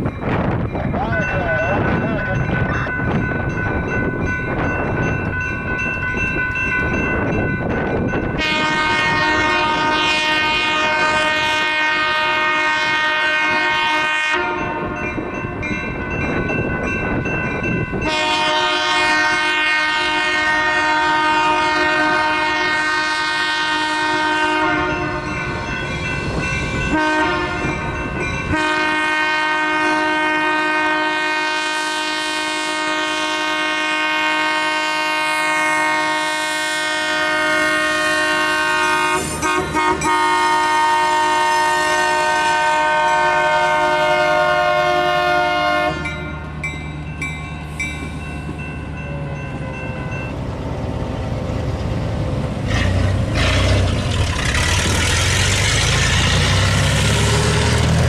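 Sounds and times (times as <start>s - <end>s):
crossing warning bell ringing: 0.0s - 58.0s
locomotive horn blasts: 8.3s - 15.2s, 18.0s - 25.8s, 26.7s - 46.5s.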